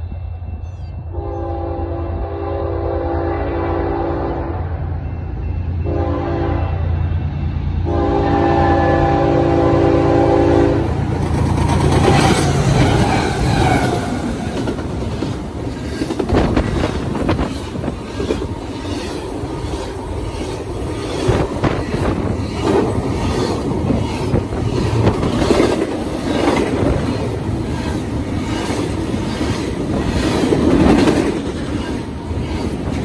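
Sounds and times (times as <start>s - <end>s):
train cars rushing past: 0.0s - 33.0s
locomotive air horn blasts: 1.1s - 4.7s, 5.8s - 6.9s, 7.8s - 11.0s.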